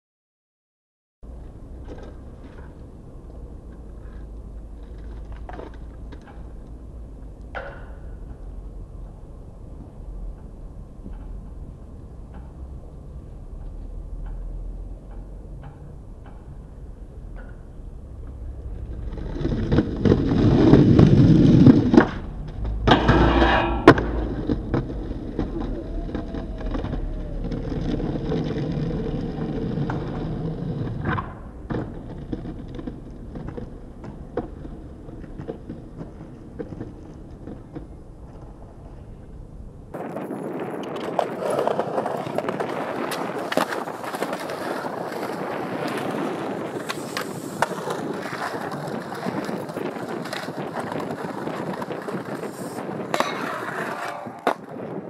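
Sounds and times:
skateboard wheels rolling on concrete: 0:01.2 - 0:55.0
skateboard popping and landing clacks: 0:01.4 - 0:03.0, 0:04.7 - 0:06.8, 0:13.6 - 0:39.0, 0:40.2 - 0:55.0.

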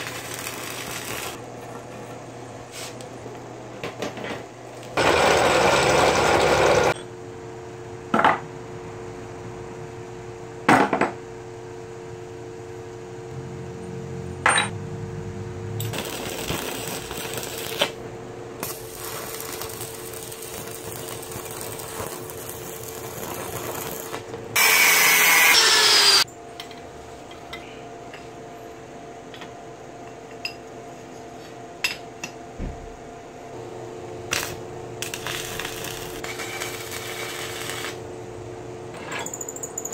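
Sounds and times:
arc welder crackling: 0:00.0 - 0:01.4, 0:15.8 - 0:18.0, 0:18.6 - 0:26.3, 0:34.2 - 0:38.1
power tool burst: 0:23.8 - 0:26.2
drill press boring into steel: 0:24.6 - 0:26.2.

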